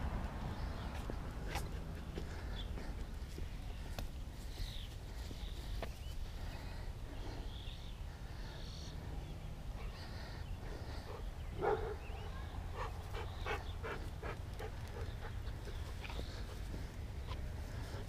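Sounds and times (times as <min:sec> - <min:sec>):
dog panting: 0:12.7 - 0:18.0.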